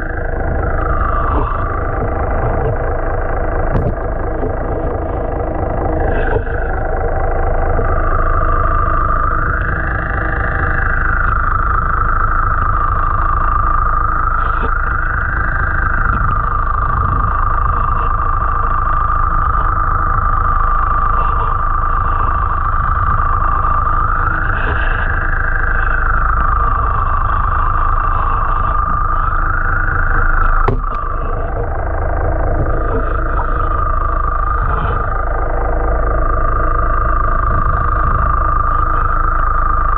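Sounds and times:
mechanical hum with whine: 0:00.0 - 0:39.9.

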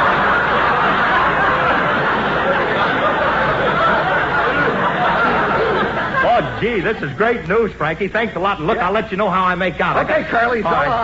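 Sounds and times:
studio audience laughing: 0:00.0 - 0:08.0.

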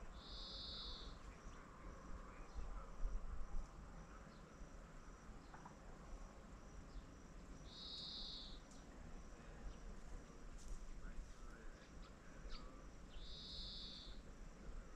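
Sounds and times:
insects chirping: 0:00.0 - 0:14.9
insect buzzing trill: 0:07.6 - 0:08.6, 0:12.6 - 0:14.2.

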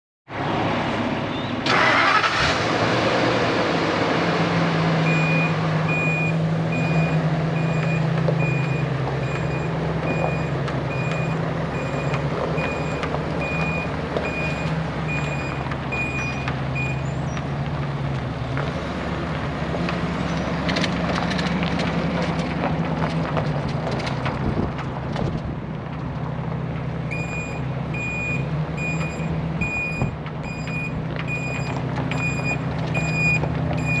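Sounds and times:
truck engine running: 0:00.7 - 0:34.0
backup alarm beeping: 0:05.1 - 0:17.0, 0:27.1 - 0:34.0.

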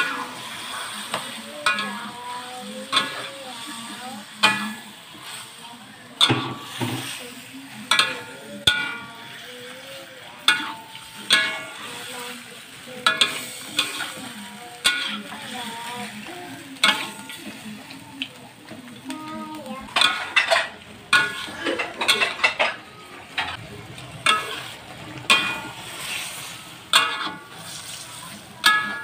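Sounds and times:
metal spatula clanking on wok: 0:00.0 - 0:05.4, 0:06.2 - 0:07.2, 0:07.8 - 0:09.2, 0:10.4 - 0:18.0, 0:19.8 - 0:22.8, 0:24.2 - 0:29.0
low sizzle of simmering sauce: 0:00.0 - 0:29.0.

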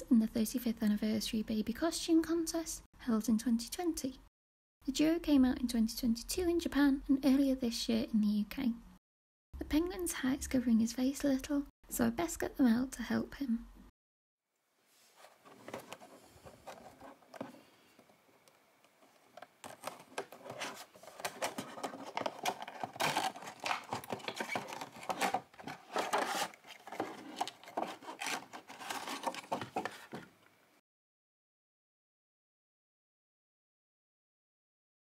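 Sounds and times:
cardboard scraping: 0:15.0 - 0:17.7, 0:19.0 - 0:30.3
plastic crinkling: 0:19.0 - 0:30.3.

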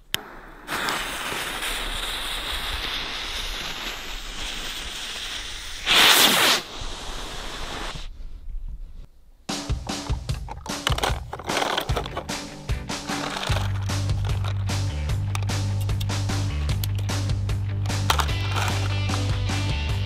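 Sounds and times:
firework fuse sizzling: 0:00.0 - 0:08.2, 0:18.0 - 0:19.8.

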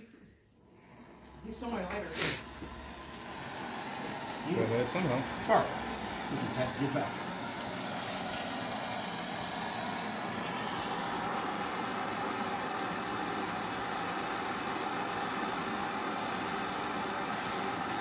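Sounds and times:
gas torch burning: 0:00.7 - 0:18.0.

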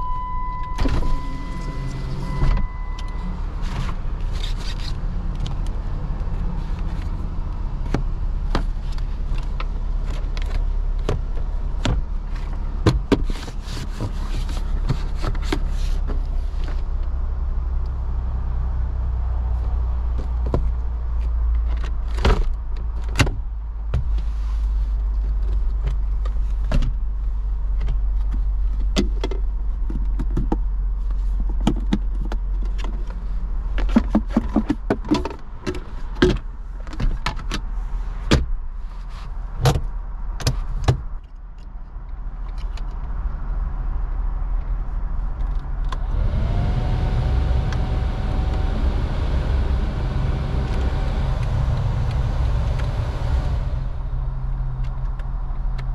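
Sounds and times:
engine idle hum: 0:46.0 - 0:55.9.

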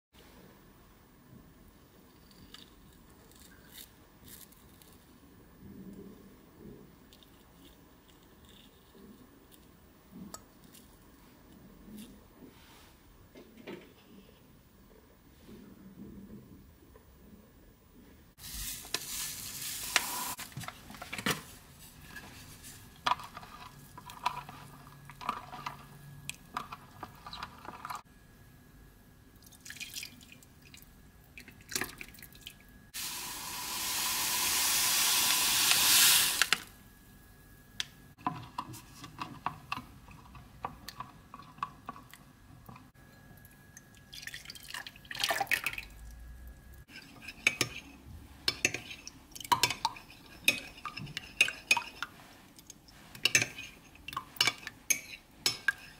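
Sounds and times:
liquid pouring into a bowl: 0:29.4 - 0:32.6, 0:43.8 - 0:46.2.

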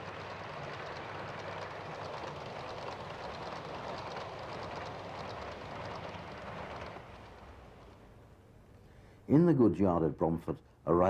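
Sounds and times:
model trains rumbling on track: 0:00.0 - 0:08.4.

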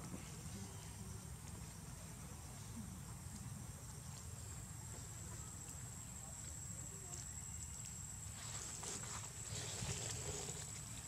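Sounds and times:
rustling in grass: 0:08.2 - 0:11.0.

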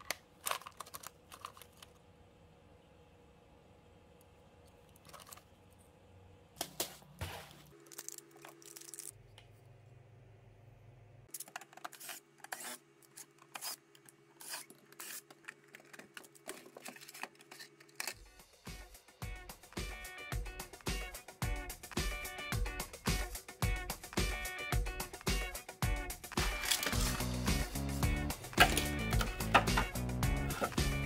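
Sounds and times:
plastic and screws clattering: 0:00.0 - 0:02.0, 0:14.4 - 0:18.2, 0:26.5 - 0:27.2, 0:28.6 - 0:30.8.

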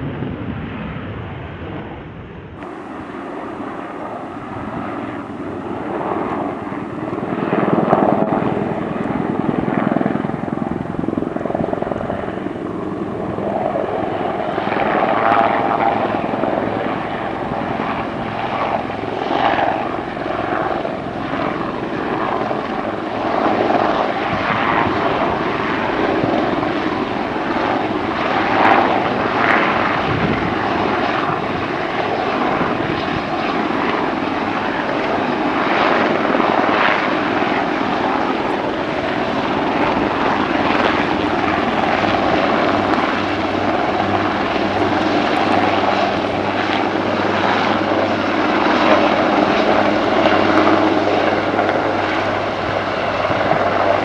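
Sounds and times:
helicopter rotor and turbine: 0:00.0 - 0:54.0.

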